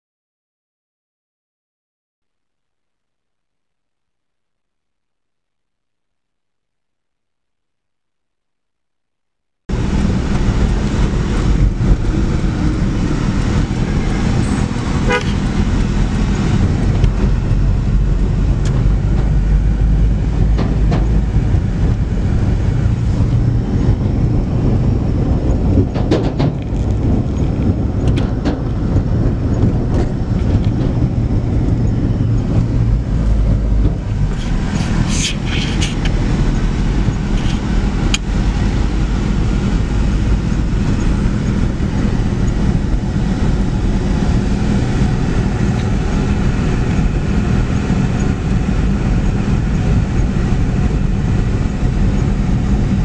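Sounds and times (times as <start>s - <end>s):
traffic rumble: 9.7s - 53.0s
car horns tooting: 13.8s - 15.7s.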